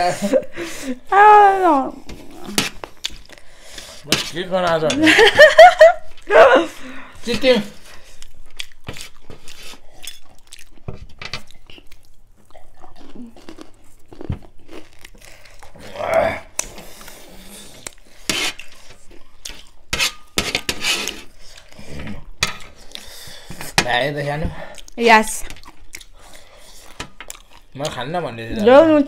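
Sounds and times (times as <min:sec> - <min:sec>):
crunchy chewing: 0:07.8 - 0:19.9, 0:24.7 - 0:28.1.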